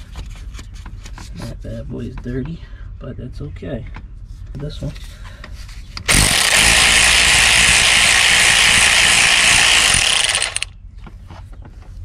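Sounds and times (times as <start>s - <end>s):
cordless ratchet running: 6.1s - 10.7s.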